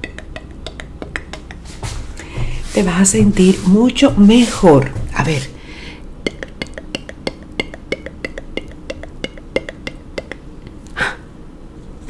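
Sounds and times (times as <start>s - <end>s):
brushing swish: 1.6s - 5.5s.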